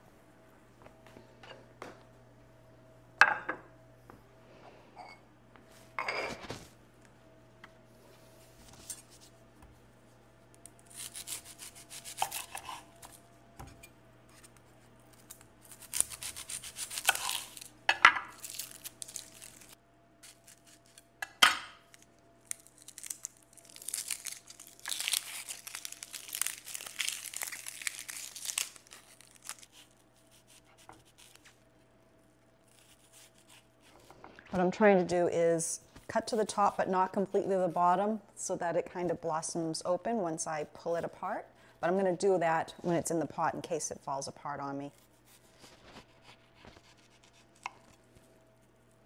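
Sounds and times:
faint steady hum: 0:00.0 - 0:49.0
onion skin crinkling: 0:10.6 - 0:13.2, 0:14.3 - 0:31.7, 0:32.3 - 0:34.1.

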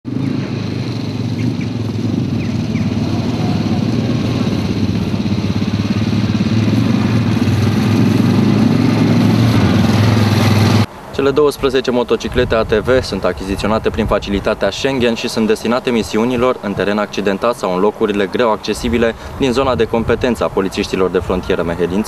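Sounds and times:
atv engines running: 0:00.1 - 0:22.0.

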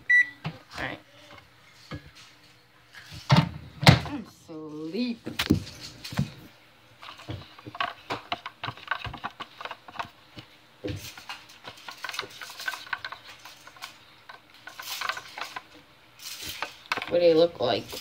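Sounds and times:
plastic cup clicks and rustles: 0:07.0 - 0:18.0.

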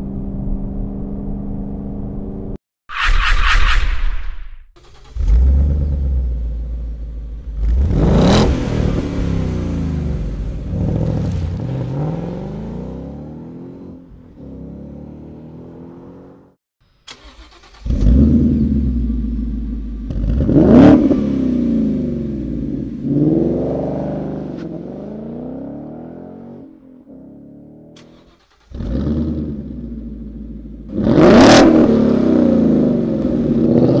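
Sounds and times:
car engine revving: 0:04.8 - 0:34.0.

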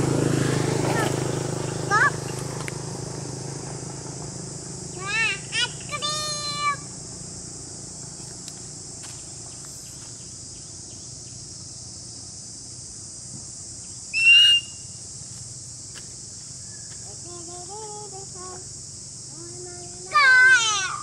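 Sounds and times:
insects droning: 0:00.0 - 0:21.0
whistle-like call: 0:14.1 - 0:15.0.

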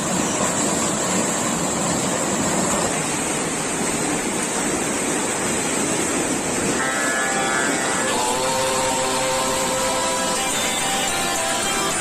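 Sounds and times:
floodwater rushing: 0:00.0 - 0:12.0
steady tones: 0:06.6 - 0:12.0.

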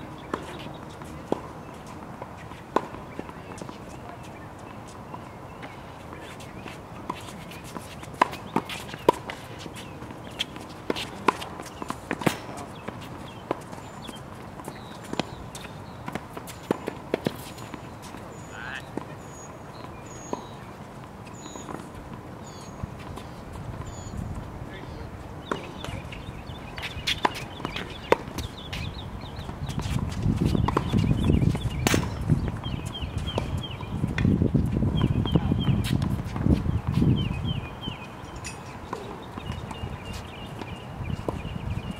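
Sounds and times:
outdoor background noise: 0:00.0 - 0:41.9
tennis balls bouncing on hard court: 0:00.0 - 0:41.9
tennis balls struck with rackets: 0:00.1 - 0:04.4, 0:05.1 - 0:19.2, 0:19.8 - 0:22.3, 0:22.9 - 0:34.4.

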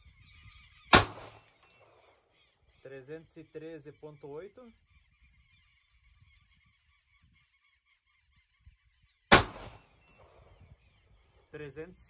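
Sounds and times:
pistol shot: 0:00.9 - 0:01.6, 0:09.3 - 0:10.2.

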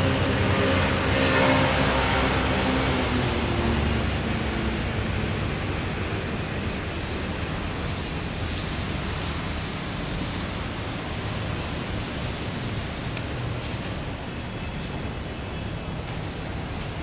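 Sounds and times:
steady background hiss: 0:06.1 - 0:17.0.

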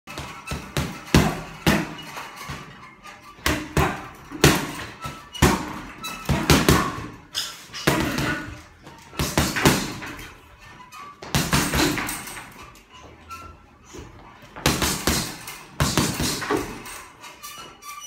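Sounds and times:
punches thudding on heavy bag: 0:00.2 - 0:02.8, 0:03.4 - 0:07.2, 0:07.8 - 0:10.2, 0:11.2 - 0:12.4, 0:14.6 - 0:16.9.

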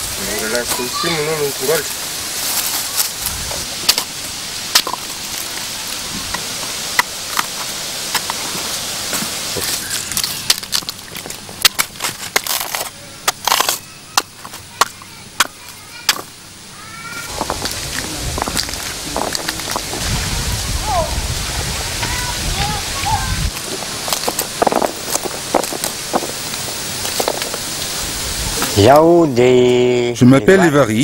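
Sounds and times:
steady outdoor hiss: 0:00.0 - 0:31.0
plant stalks snapping and rustling: 0:02.4 - 0:15.5, 0:17.3 - 0:20.1, 0:23.5 - 0:28.0.

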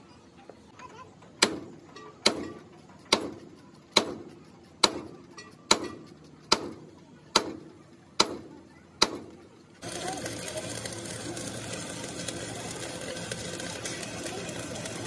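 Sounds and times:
hammer striking metal tool: 0:01.4 - 0:07.6.

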